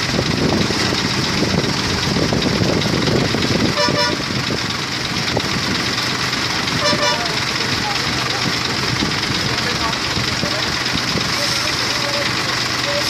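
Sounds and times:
crane engines running: 0:00.0 - 0:13.0
vehicle horn toot: 0:03.7 - 0:04.3, 0:06.8 - 0:07.4.

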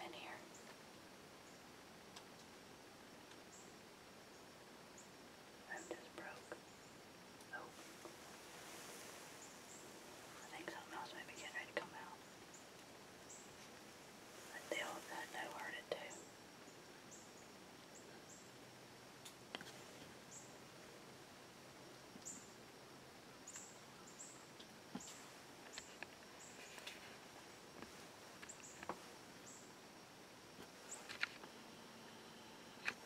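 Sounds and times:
small birds chirping: 0:08.7 - 0:13.8, 0:14.4 - 0:20.6, 0:22.2 - 0:22.6, 0:23.4 - 0:29.8.

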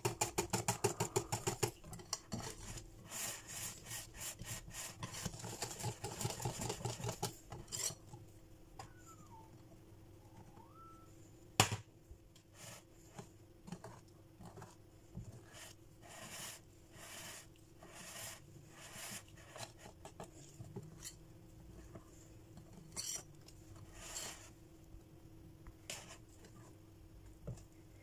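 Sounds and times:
whisk swishing in batter: 0:00.3 - 0:08.0.

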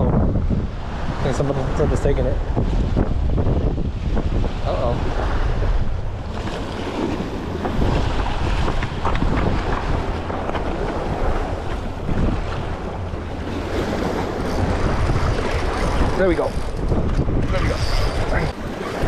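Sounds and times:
wind buffeting microphone: 0:00.0 - 0:19.0
waves splashing against rocks: 0:02.5 - 0:19.0.

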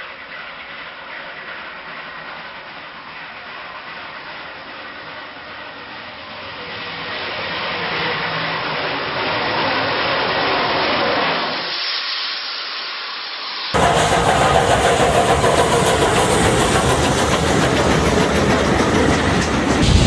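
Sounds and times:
steam locomotive passing: 0:00.0 - 0:20.0.

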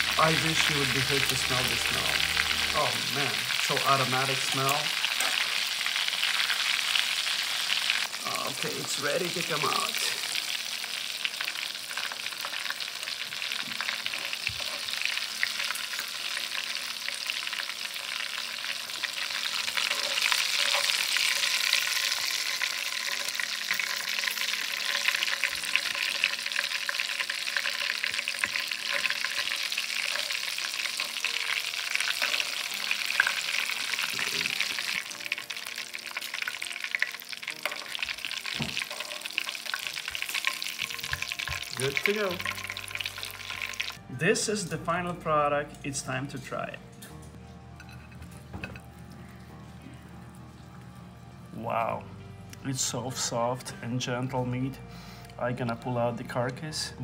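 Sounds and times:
oil sizzling and crackling: 0:00.0 - 0:44.0.

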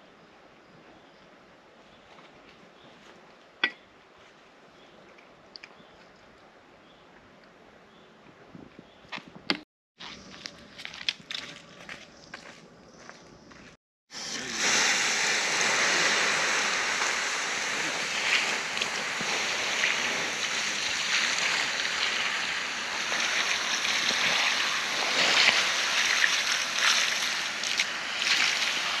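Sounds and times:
water splashing on embers: 0:14.2 - 0:29.0.

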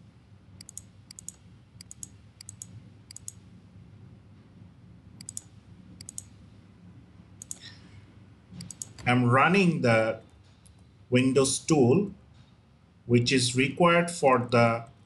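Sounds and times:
faint low hum: 0:00.0 - 0:15.0
computer mouse button clicking: 0:00.6 - 0:03.4, 0:05.2 - 0:06.3, 0:08.6 - 0:09.0.

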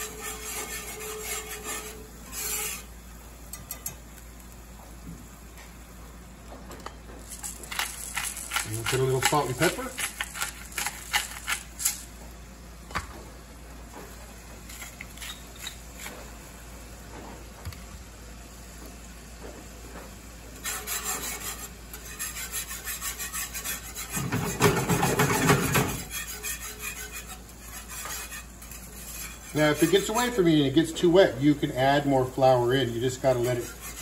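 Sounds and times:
whisk scraping a skillet: 0:00.0 - 0:04.0, 0:07.3 - 0:12.1, 0:20.6 - 0:34.0.

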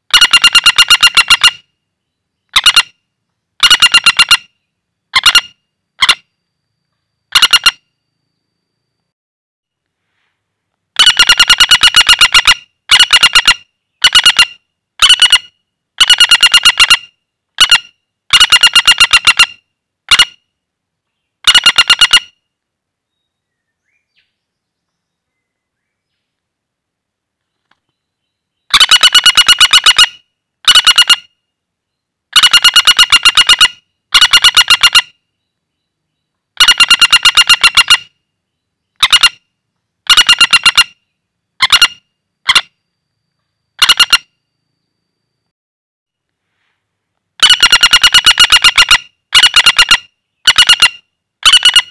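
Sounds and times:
woodpecker rattling calls: 0:00.0 - 0:01.6, 0:02.5 - 0:03.0, 0:03.6 - 0:06.2, 0:07.3 - 0:07.8, 0:11.0 - 0:20.4, 0:21.4 - 0:22.4, 0:28.6 - 0:31.4, 0:32.3 - 0:35.2, 0:36.6 - 0:38.2, 0:38.9 - 0:42.7, 0:43.8 - 0:44.3, 0:47.4 - 0:51.9.

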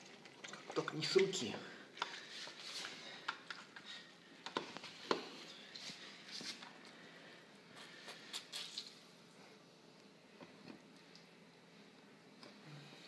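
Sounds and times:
wet squishing of orange pulp: 0:00.0 - 0:03.7.

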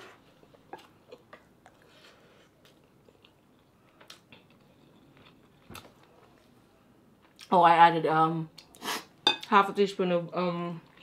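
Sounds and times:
person chewing: 0:00.3 - 0:06.2.

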